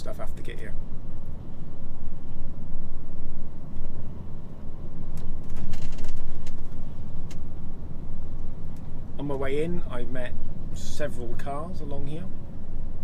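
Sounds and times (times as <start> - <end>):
road noise: 0.0 - 13.0
sharp knocks and rattles: 5.2 - 6.9.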